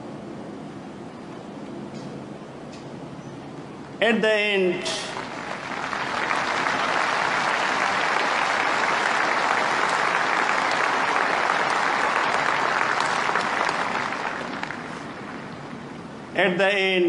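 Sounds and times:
crowd applauding: 5.0 - 16.1.

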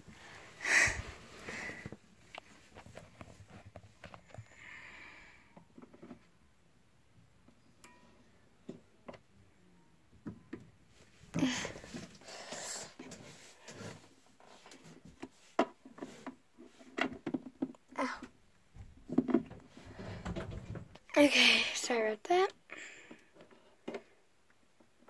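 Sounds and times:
breathy hiss: 0.1 - 2.0.

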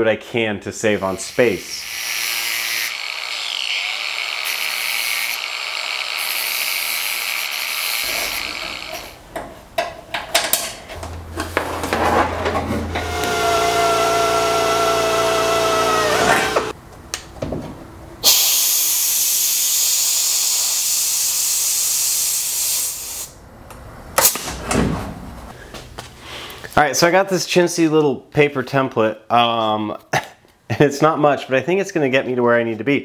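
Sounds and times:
angle grinder grinding metal: 0.9 - 9.2, 12.9 - 16.8
cordless drill drilling metal: 1.3 - 9.2, 13.1 - 16.7.

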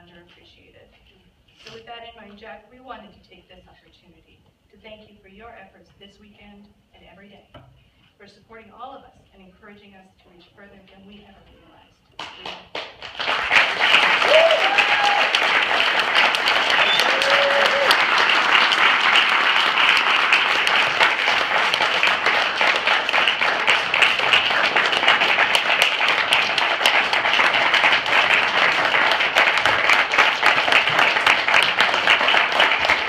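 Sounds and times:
audience applauding: 12.2 - 33.0.

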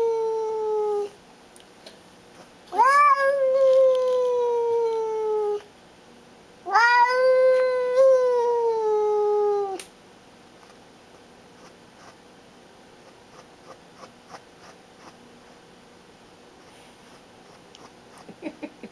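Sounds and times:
cat yowling: 2.7 - 5.6, 6.7 - 9.8.

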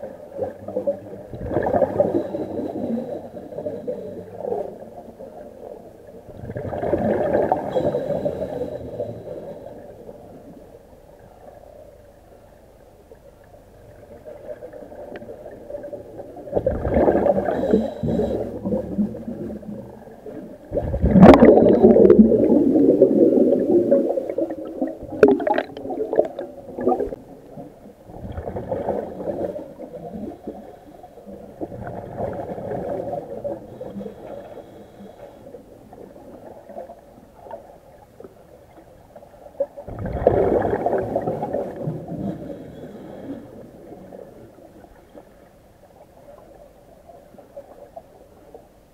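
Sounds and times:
underwater breathing bubbles: 0.5 - 4.9, 6.3 - 10.6, 14.4 - 36.8, 39.9 - 45.4.

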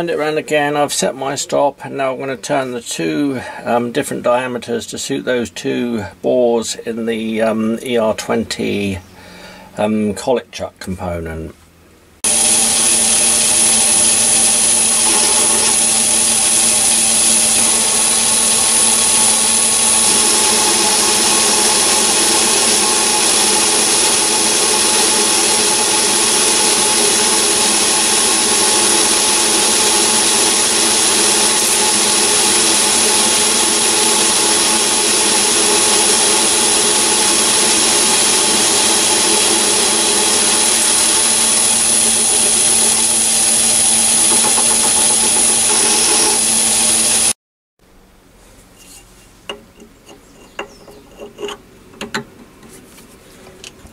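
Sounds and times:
lathe high whine: 12.2 - 47.4
lathe tool cutting steel: 12.2 - 47.4, 50.4 - 51.6.

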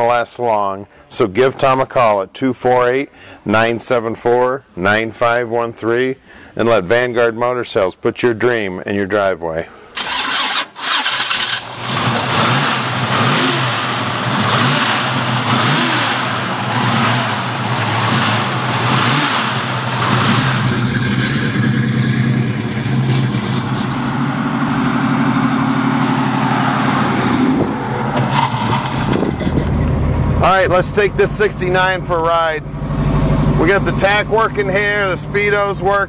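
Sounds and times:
car engine revving and running: 10.2 - 36.0.

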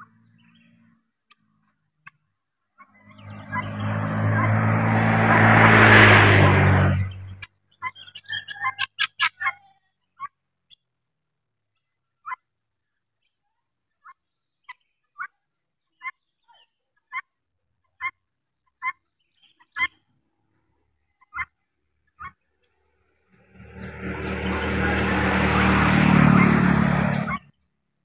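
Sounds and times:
guineafowl calling: 2.8 - 10.8, 14.0 - 20.0, 21.2 - 22.4, 23.4 - 27.6.

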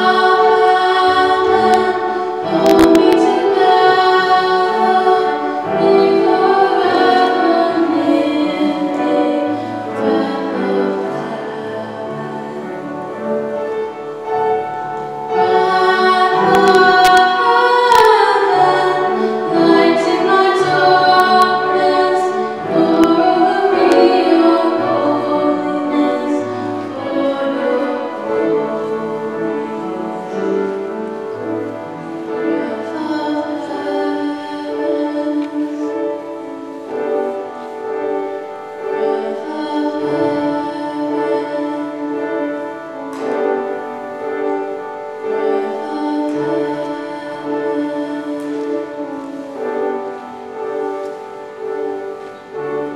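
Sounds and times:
choir singing: 0.0 - 52.9
piano accompaniment: 0.0 - 52.9.

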